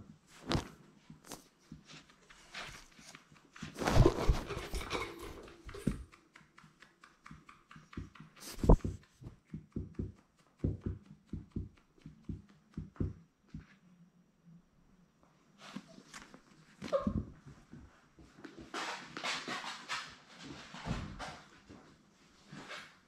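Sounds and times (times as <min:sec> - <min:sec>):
puppy sniffing: 0:07.9 - 0:09.3.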